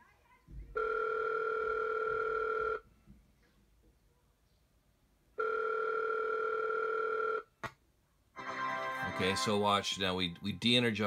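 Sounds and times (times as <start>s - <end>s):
telephone ringing tone: 0.8s - 2.8s, 5.4s - 7.5s.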